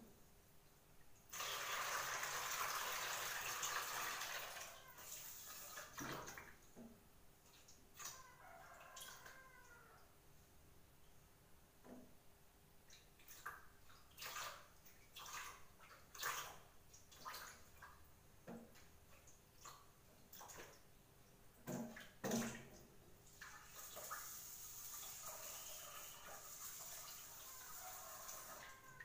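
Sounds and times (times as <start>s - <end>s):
splashes and knocks of rinsing: 1.3s - 8.3s, 12.9s - 20.9s, 21.5s - 25.4s.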